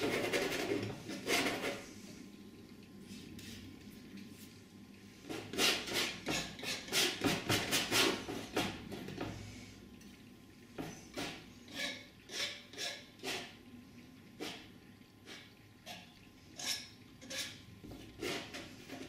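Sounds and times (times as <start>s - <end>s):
painting knife scraping canvas: 0.0s - 1.8s.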